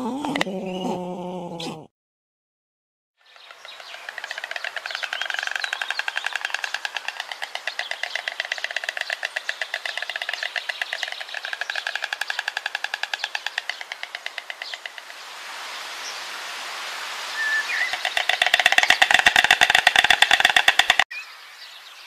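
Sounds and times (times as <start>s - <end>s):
stork bill clattering: 3.3s - 15.2s, 17.8s - 21.1s.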